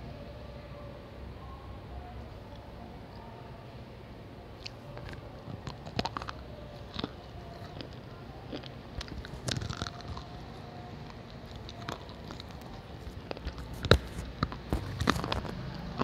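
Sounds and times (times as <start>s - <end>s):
slate pencil crunching: 5.0s - 15.7s.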